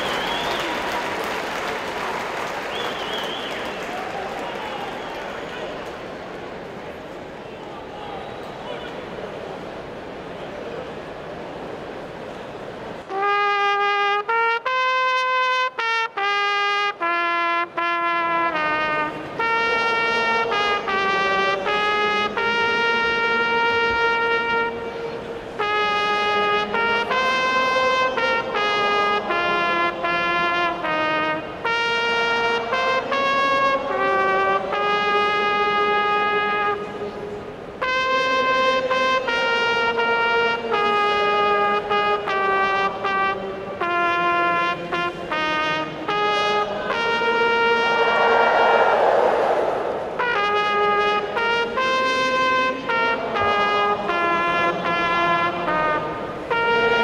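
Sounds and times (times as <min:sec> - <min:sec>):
brass accompaniment: 0:00.0 - 0:05.6, 0:13.1 - 0:57.0
trumpet melody: 0:13.1 - 0:48.4, 0:50.2 - 0:57.0.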